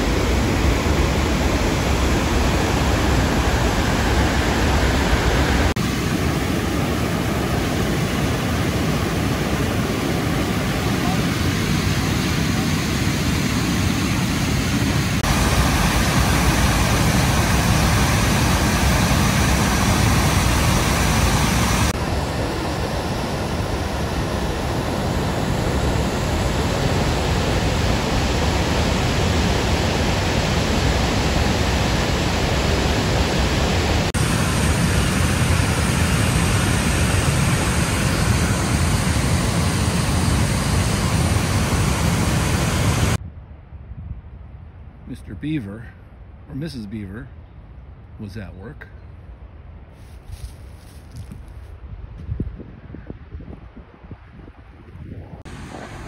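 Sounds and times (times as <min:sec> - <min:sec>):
water rushing over rock ledges: 0:15.2 - 0:22.0.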